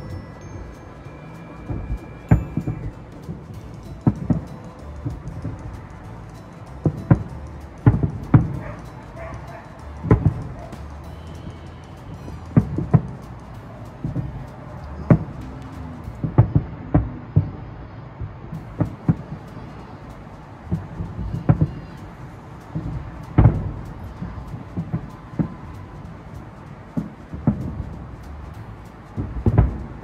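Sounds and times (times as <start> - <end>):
distant fireworks booming: 16.2 - 17.6.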